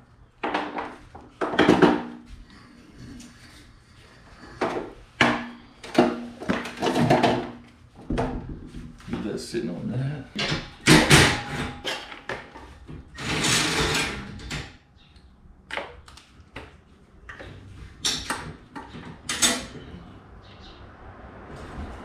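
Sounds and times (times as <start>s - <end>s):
metal clanks and rattles: 4.5s - 9.0s, 10.3s - 14.8s, 17.3s - 20.1s.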